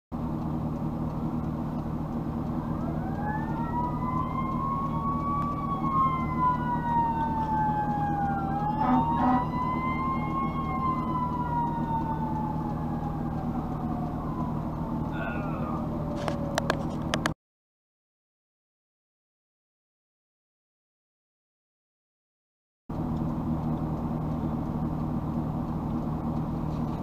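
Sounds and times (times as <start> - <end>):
fire truck siren wailing: 0.2 - 17.4
low engine hum: 0.2 - 17.4, 22.9 - 27.0
horn blasts: 8.7 - 9.7.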